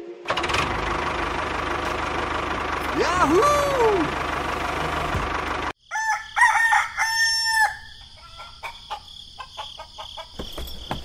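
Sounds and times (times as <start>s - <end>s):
rooster crowing: 5.8s - 10.3s.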